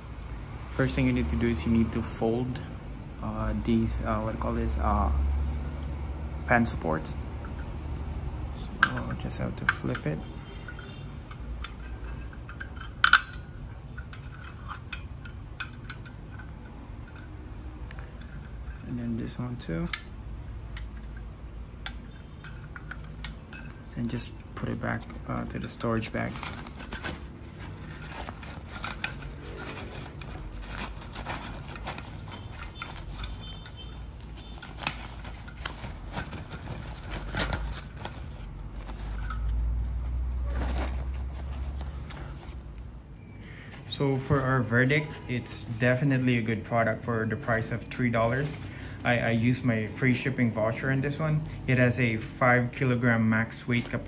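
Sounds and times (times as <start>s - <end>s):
metal parts clicking: 8.6s - 39.9s
fabric rustling: 23.5s - 43.0s.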